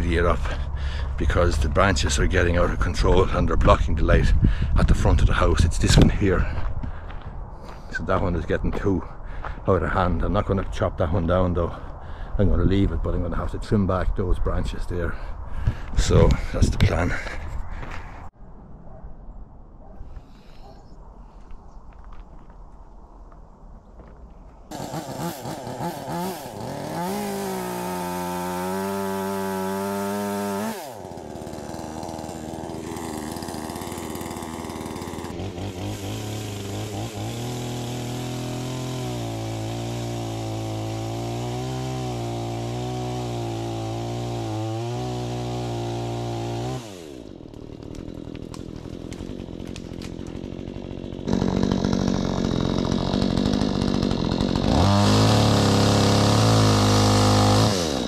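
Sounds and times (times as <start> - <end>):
chainsaw cutting wood: 24.7 - 58.0.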